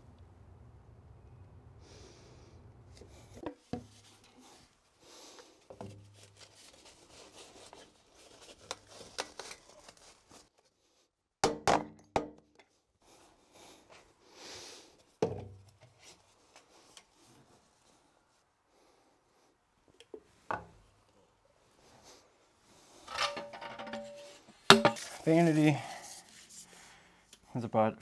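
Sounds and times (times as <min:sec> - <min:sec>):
plastic pipe knocks and rubbing: 0:03.4 - 0:04.1, 0:05.7 - 0:06.2, 0:23.3 - 0:25.2.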